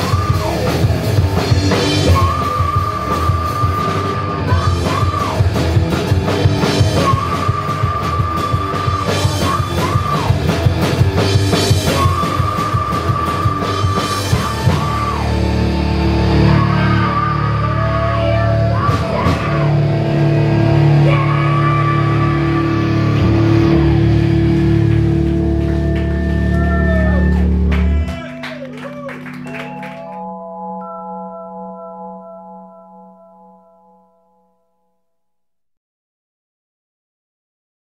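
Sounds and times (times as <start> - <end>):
drums: 0.0 - 30.1
live rock band playing: 0.0 - 32.8
long held notes ringing: 25.6 - 35.2.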